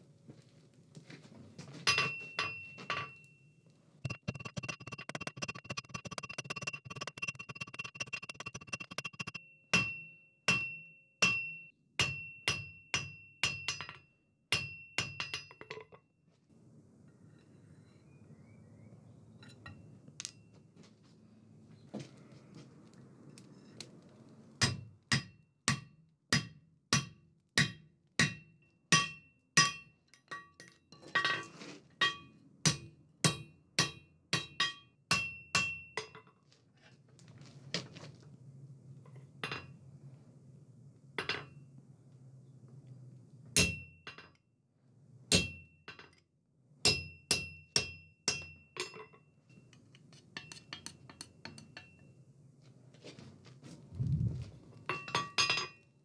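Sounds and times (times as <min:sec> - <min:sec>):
hammer striking steel on anvil: 0:01.9 - 0:03.2, 0:08.0 - 0:15.7, 0:24.6 - 0:30.8, 0:32.0 - 0:36.2, 0:43.6 - 0:44.2, 0:45.3 - 0:45.8, 0:46.8 - 0:49.7, 0:50.4 - 0:52.0
low steady hum: 0:53.8 - 0:54.8.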